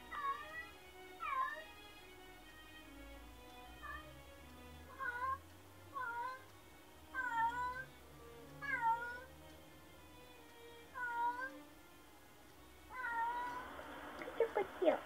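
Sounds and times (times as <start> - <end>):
cat meowing: 0.1 - 0.6, 1.2 - 1.7, 4.9 - 6.4, 7.2 - 7.9, 8.6 - 9.3, 10.9 - 11.6, 12.9 - 13.6.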